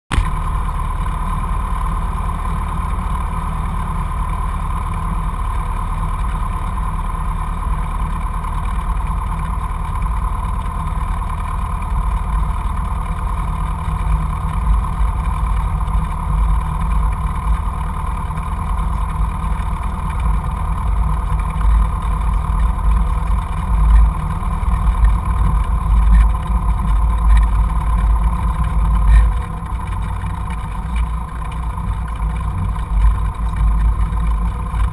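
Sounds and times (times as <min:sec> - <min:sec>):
aircraft piston engine rumbling: 0:00.1 - 0:34.9.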